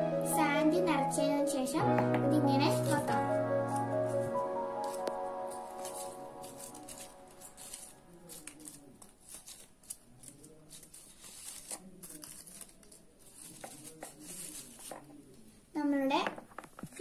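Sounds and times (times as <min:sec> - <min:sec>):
paper flowers rustling: 0:02.0 - 0:15.5.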